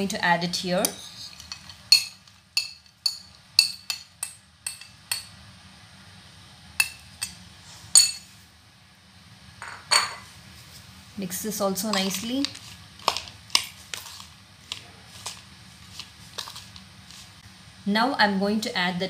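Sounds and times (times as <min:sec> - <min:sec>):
spoon scraping dish: 0:00.8 - 0:05.3
spoon clinking on ceramic: 0:00.8 - 0:05.4, 0:06.8 - 0:07.4.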